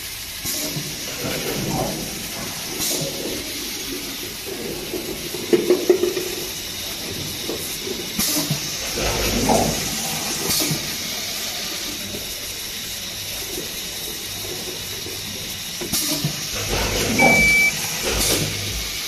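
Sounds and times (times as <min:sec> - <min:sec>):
filling machine hissing: 0:00.0 - 0:19.0
short high beep: 0:17.2 - 0:17.7.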